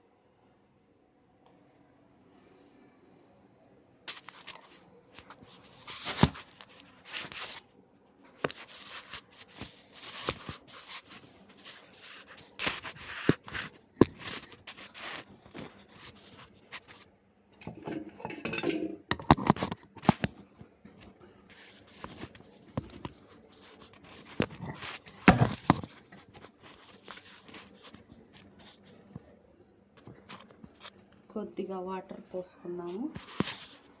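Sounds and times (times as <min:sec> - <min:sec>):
scraping and rubbing: 0:04.1 - 0:07.7, 0:08.3 - 0:20.3, 0:21.0 - 0:29.2, 0:32.9 - 0:34.0.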